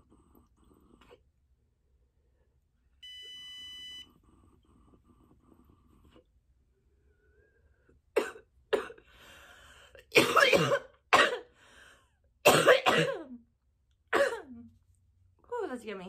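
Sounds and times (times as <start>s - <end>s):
woman coughing hard: 8.2s - 9.0s, 10.1s - 11.5s, 12.4s - 13.4s, 14.1s - 14.6s
breathy exhale: 9.1s - 10.0s.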